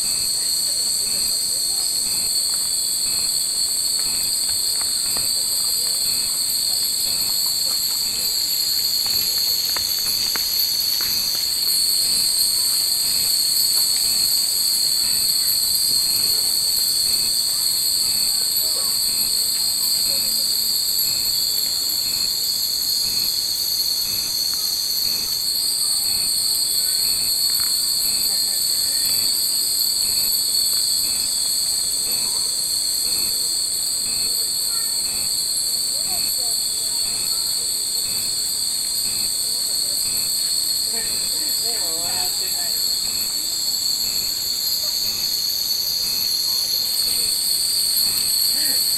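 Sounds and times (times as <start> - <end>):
cicadas chorus: 0.0 - 48.9
faint wind chimes tinkling: 7.2 - 16.9.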